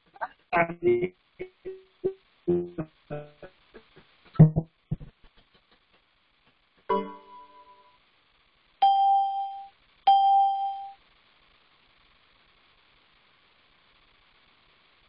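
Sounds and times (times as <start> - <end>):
video call ringing tone: 8.8 - 11.0.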